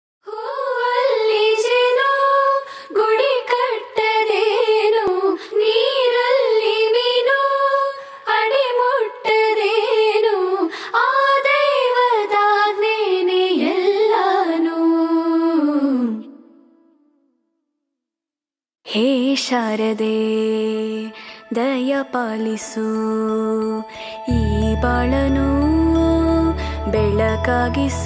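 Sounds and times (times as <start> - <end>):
person singing devotional melody: 0.3 - 17.0, 18.9 - 28.0
short breaths: 2.7 - 2.9, 10.7 - 11.0, 21.2 - 21.5, 23.9 - 24.2.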